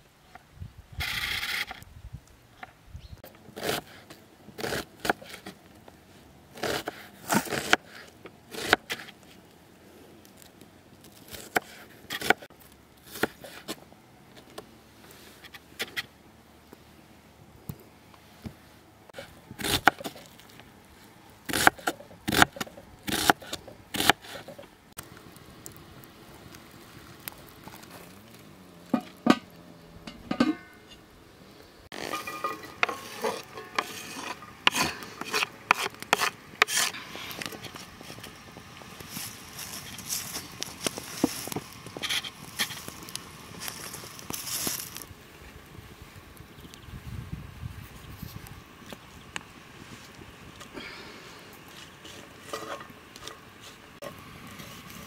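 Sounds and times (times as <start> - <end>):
scraping and clicking of handled objects: 31.9 - 45.1, 51.5 - 55.0.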